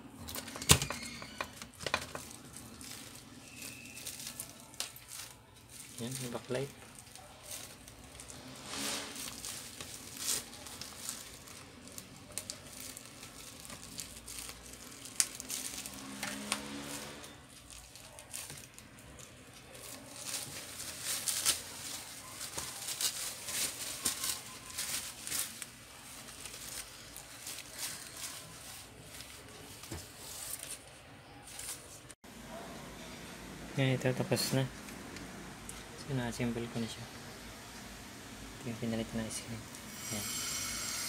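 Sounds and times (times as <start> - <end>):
plastic sheet rustling: 0.4 - 32.2.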